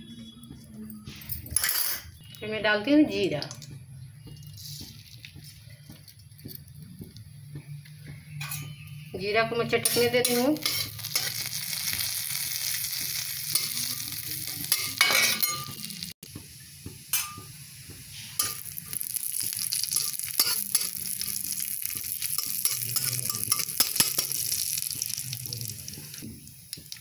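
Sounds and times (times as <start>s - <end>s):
metal spatula scraping pan: 9.7s - 12.0s
seeds sizzling in hot oil: 9.7s - 27.0s.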